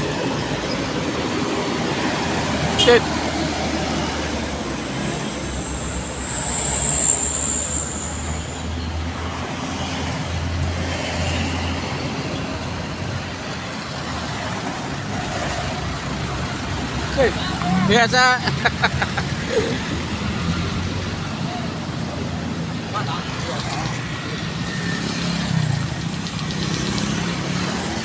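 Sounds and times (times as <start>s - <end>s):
cars passing with tyre noise: 0.0s - 28.0s
high-pitched whine: 5.2s - 8.9s
truck diesel engine rumbling: 12.4s - 23.3s.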